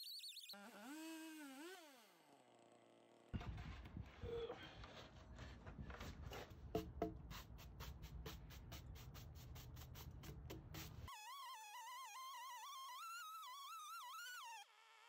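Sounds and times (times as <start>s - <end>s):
wire brush scrubbing wood: 4.3s - 11.1s.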